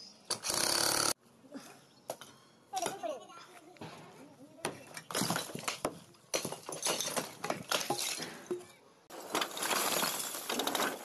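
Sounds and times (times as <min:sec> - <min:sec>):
brick rubble clattering down: 0:05.0 - 0:11.0.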